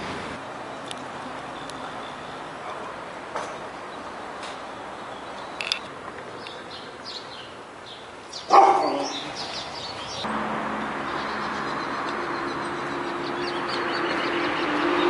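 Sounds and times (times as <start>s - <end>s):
bird chirps: 6.4s - 10.3s
dog barking: 8.5s - 9.3s.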